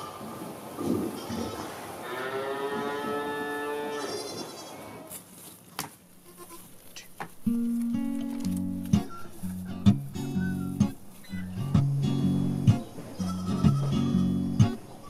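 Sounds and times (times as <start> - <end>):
goat kid bleating: 4.0 - 5.1, 6.2 - 7.2, 13.2 - 14.4.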